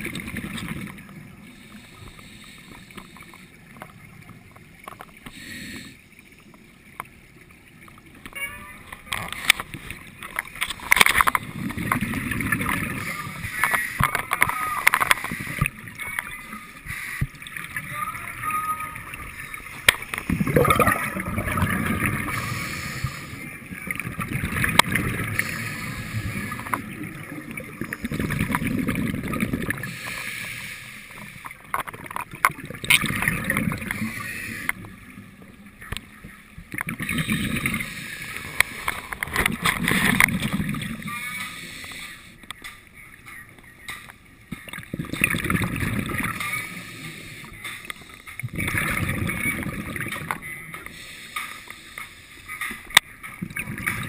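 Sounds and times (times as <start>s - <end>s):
exhaled bubbles rumbling: 0.0s - 1.5s, 7.6s - 16.6s, 17.3s - 29.9s, 31.5s - 41.3s, 44.6s - 46.9s, 48.4s - 50.8s, 53.4s - 54.0s
diver breathing through regulator: 5.2s - 6.1s, 22.2s - 23.5s, 25.2s - 26.8s, 29.8s - 31.4s, 33.8s - 34.8s, 37.1s - 39.2s, 41.3s - 42.4s, 50.8s - 52.6s.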